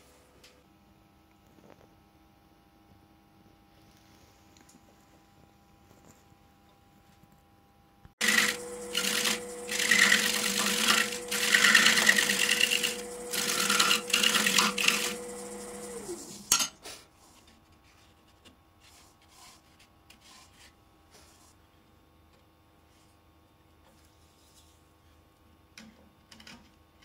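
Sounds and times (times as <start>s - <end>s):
turning tool scraping wood: 8.2s - 16.5s, 18.8s - 21.6s
wood lathe motor humming: 8.2s - 16.5s.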